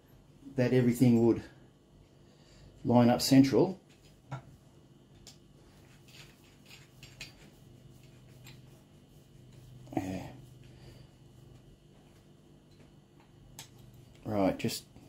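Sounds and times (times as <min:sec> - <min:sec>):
light metal clicks and taps: 0:12.7 - 0:14.3.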